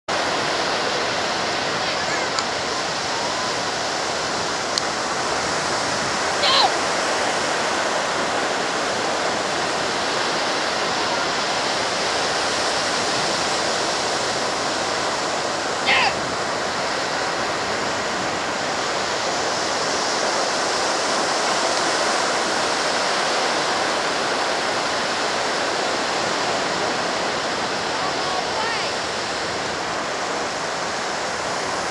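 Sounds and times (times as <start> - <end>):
ocean surf breaking on beach: 0.1 - 31.9
short high cry: 6.4 - 6.9, 15.8 - 16.2.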